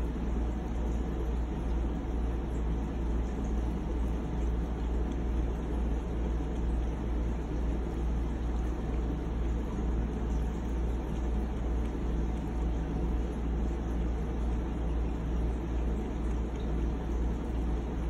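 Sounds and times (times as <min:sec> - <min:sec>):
low background hum and rumble: 0:00.0 - 0:18.0.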